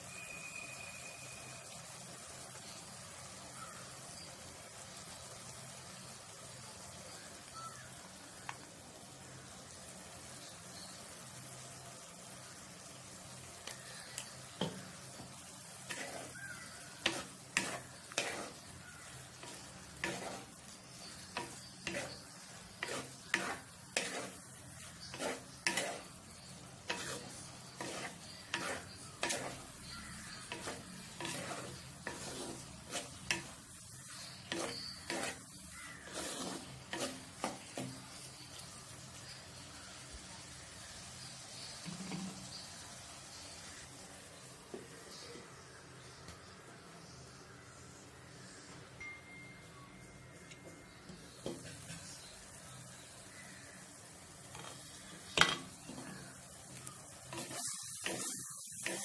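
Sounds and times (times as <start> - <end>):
mushrooms sizzling in a pot: 0.0 - 59.0
spatula scraping clay pot: 15.8 - 38.0, 56.8 - 59.0.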